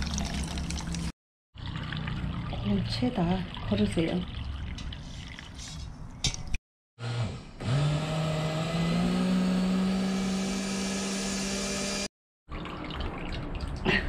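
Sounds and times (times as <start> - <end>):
electric blender motor running: 7.0 - 12.1.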